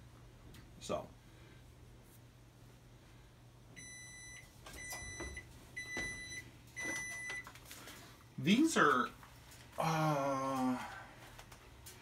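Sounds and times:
electronic timer beeping: 0:03.8 - 0:07.4.

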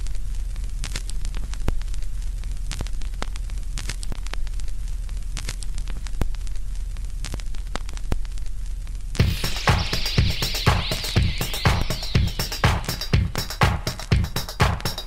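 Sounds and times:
static hiss with pops and clicks: 0:00.0 - 0:15.0
low hum: 0:09.2 - 0:14.4.

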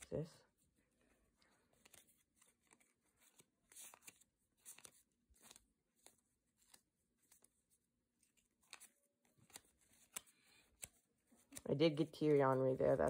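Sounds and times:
trading cards flicking and sliding: 0:00.9 - 0:12.8.

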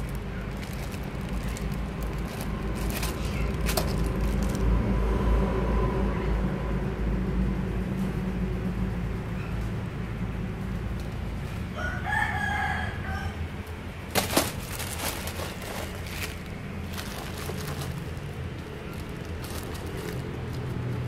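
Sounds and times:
sharp crackles and knocks: 0:00.0 - 0:04.7, 0:14.1 - 0:21.0
rooster crowing: 0:11.7 - 0:13.6.

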